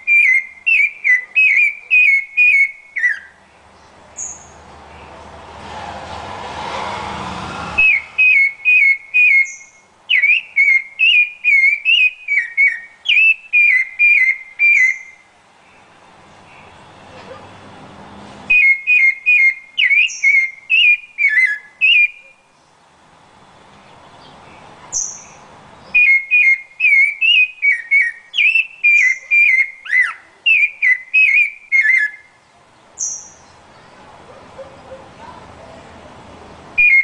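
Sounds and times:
thrush whistled song: 0.0s - 3.4s, 7.6s - 15.3s, 18.5s - 22.4s, 25.0s - 32.4s, 36.8s - 37.0s.

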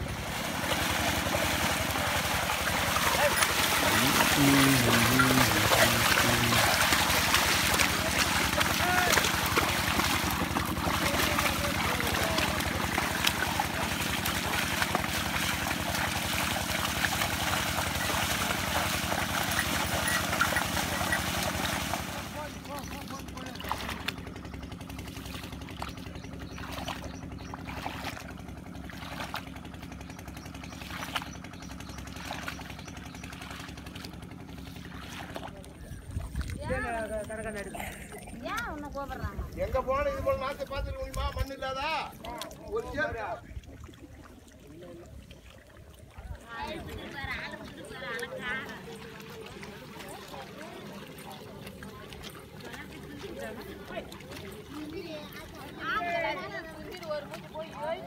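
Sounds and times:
engine drone: 0.0s - 40.5s
water and mud sloshing: 0.0s - 58.0s
man calling out: 3.2s - 6.9s.

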